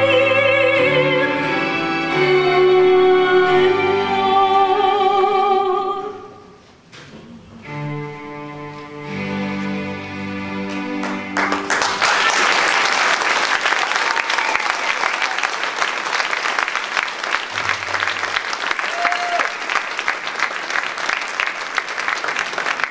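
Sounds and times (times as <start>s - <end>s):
audience applauding: 10.6s - 22.9s.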